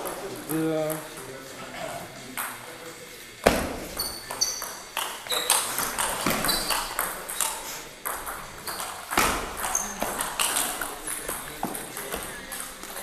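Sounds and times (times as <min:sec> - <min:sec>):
table tennis ball hits: 0:03.4 - 0:13.0.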